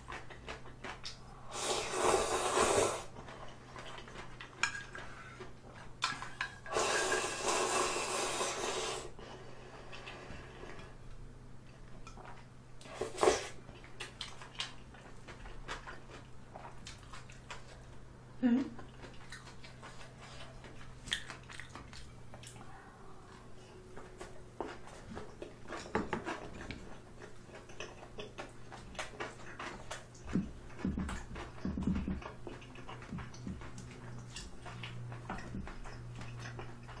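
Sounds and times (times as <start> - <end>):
chewing: 0.0 - 1.4, 2.9 - 6.7, 11.6 - 18.0, 18.8 - 37.0
noodles being slurped: 1.4 - 4.2, 6.6 - 9.2, 12.8 - 13.6.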